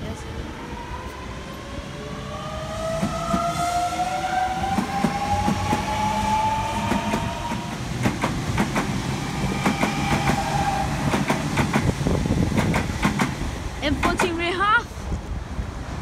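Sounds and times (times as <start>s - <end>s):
train wheels clicking over rail joints: 4.7s - 6.0s, 6.8s - 14.4s.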